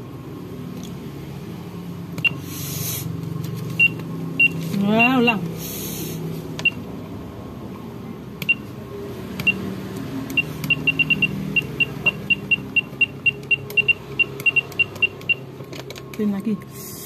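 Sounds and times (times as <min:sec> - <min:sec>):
electronic keypad beeps: 0:03.8 - 0:05.4, 0:08.4 - 0:08.7, 0:09.4 - 0:09.7, 0:10.3 - 0:15.5.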